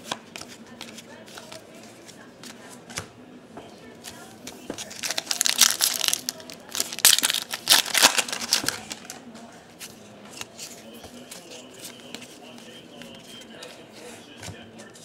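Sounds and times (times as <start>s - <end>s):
foil wrapper crinkling and tearing: 4.8s - 9.2s.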